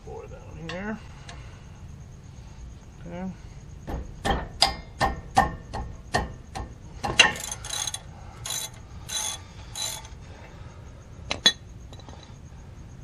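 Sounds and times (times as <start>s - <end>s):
wrench clicks: 7.2s - 10.1s
ratchet wrench ratcheting: 7.2s - 10.2s.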